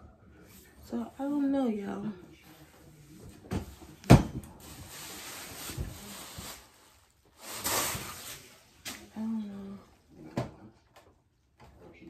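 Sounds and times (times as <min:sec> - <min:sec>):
rubbing and rustling: 0:02.4 - 0:09.0.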